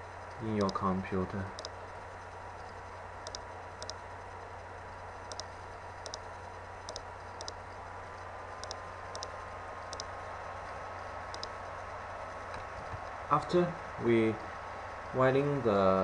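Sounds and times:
steady background hum and hiss: 0.0 - 16.0
computer mouse button clicks: 5.3 - 6.2.

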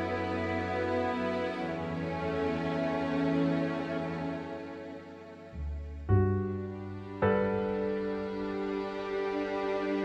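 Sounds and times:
piano chords ringing: 5.8 - 10.0.

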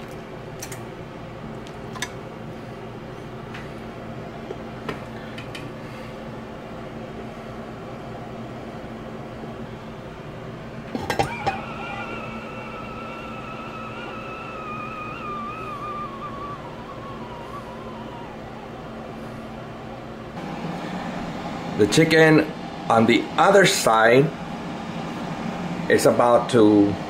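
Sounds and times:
low hum: 10.8 - 27.0
steam whistling through lid: 10.9 - 27.0.

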